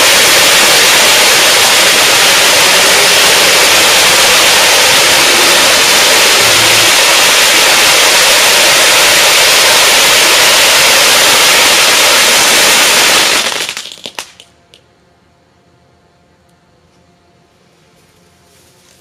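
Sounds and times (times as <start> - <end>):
firework fountains hissing: 0.0 - 14.4
firework cracks: 0.0 - 14.6.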